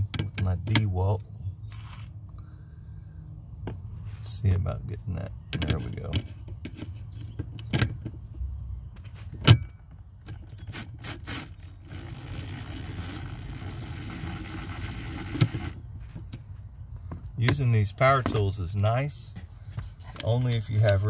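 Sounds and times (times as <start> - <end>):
drill motor whining: 1.7 - 2.1, 10.4 - 15.8
drill bit clicking on screw: 11.2 - 15.8.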